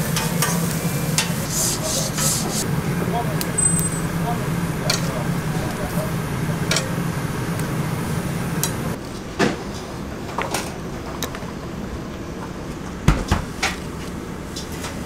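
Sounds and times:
food sizzling on a griddle: 0.0s - 2.7s
low hum: 0.1s - 9.0s.

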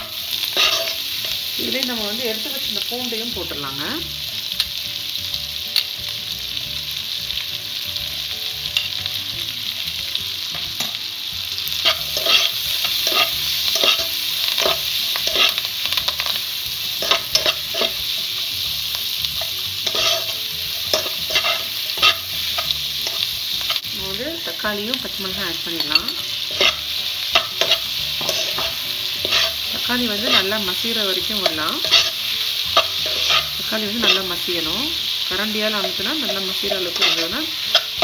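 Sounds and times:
metal spatula scraping pan: 0.0s - 1.4s, 19.3s - 23.8s, 25.8s - 34.7s, 35.8s - 38.0s
onions sizzling in oil: 0.0s - 38.0s.

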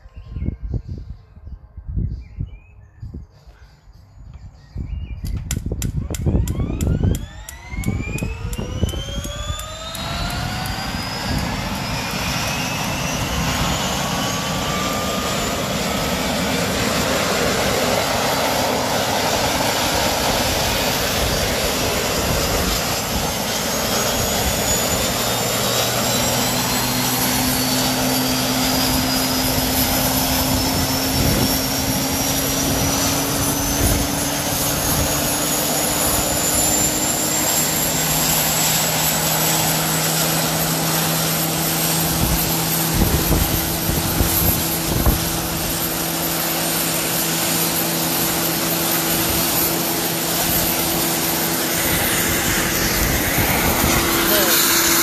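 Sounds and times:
gas turbine engine running: 5.5s - 55.0s.

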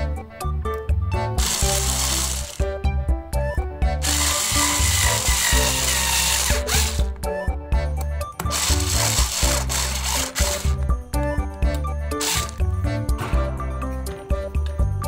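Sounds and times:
electric screwdriver driving screw: 1.4s - 2.6s, 4.0s - 7.1s, 8.4s - 10.8s, 12.2s - 12.6s.

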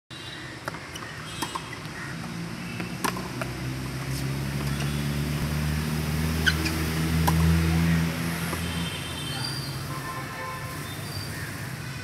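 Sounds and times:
tennis ball hits and bounces: 0.6s - 5.5s, 6.4s - 7.8s.

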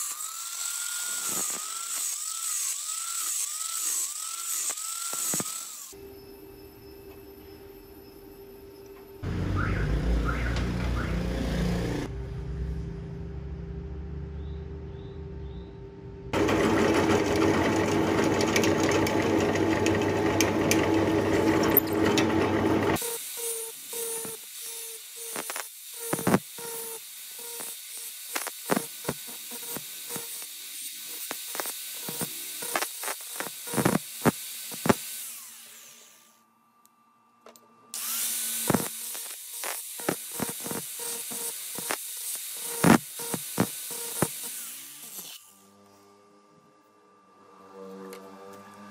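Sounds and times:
loud power tool noise: 0.0s - 6.1s, 16.3s - 36.4s, 37.9s - 48.9s
angle grinder motor whine: 0.0s - 12.2s, 16.3s - 48.9s
grinding disc scraping steel rod: 16.4s - 35.5s.

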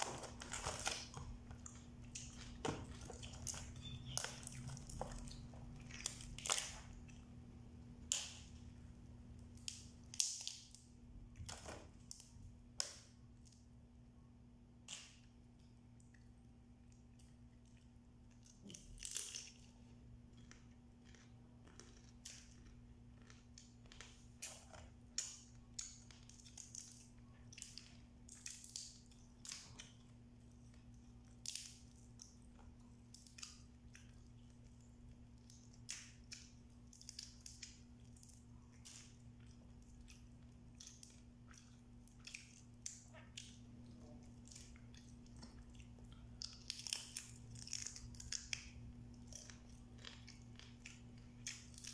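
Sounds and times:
faint steady hum: 0.0s - 51.9s
chewing: 16.1s - 51.9s.

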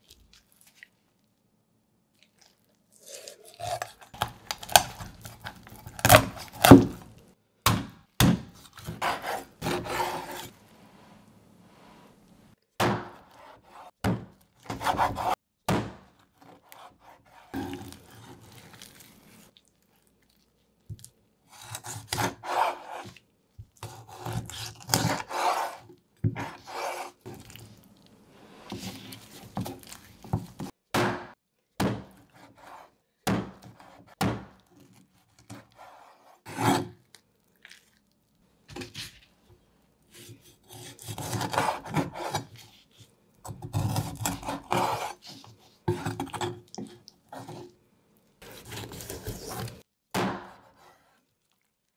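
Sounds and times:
cleaver sawing through bone: 8.8s - 10.5s, 21.5s - 23.2s, 23.8s - 27.3s, 35.5s - 37.0s, 40.1s - 42.8s, 43.6s - 46.5s, 48.4s - 49.8s.

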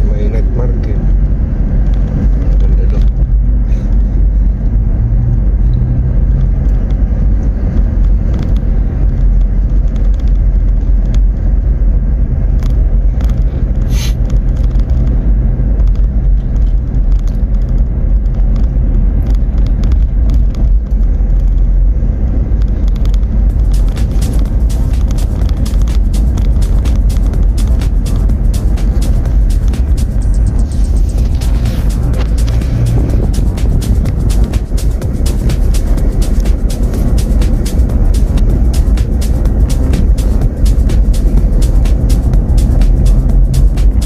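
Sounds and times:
car engine and road rumble: 0.0s - 44.0s.

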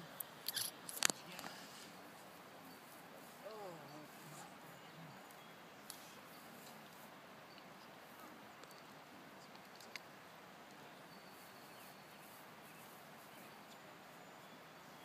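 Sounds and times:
faint high bird chirps: 11.0s - 15.0s.

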